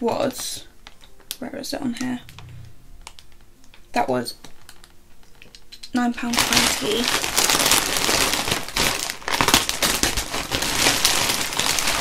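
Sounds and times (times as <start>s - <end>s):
plastic packaging crinkling: 6.2s - 12.0s.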